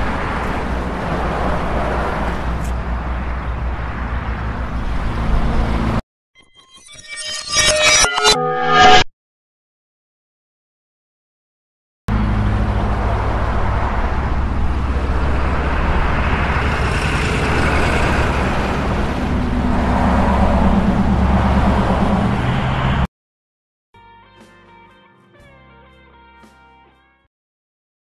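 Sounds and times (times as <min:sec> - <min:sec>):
passing cars and motorcycles: 0:00.0 - 0:06.0, 0:12.1 - 0:23.1.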